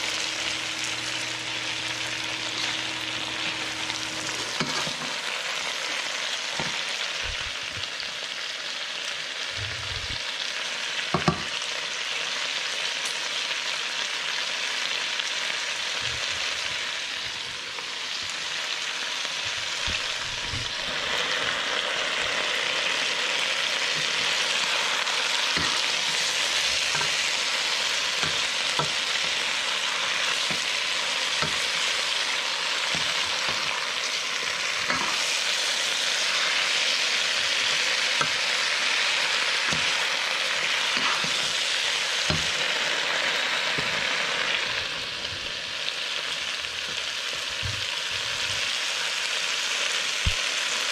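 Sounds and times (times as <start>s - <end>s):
chicken sizzling in a pan: 0.0s - 50.9s
spatula knocking and scraping pan: 2.5s - 5.2s, 25.5s - 27.4s, 28.0s - 31.9s, 32.9s - 33.9s, 34.7s - 35.4s, 37.6s - 38.4s, 39.6s - 40.0s, 40.9s - 42.6s.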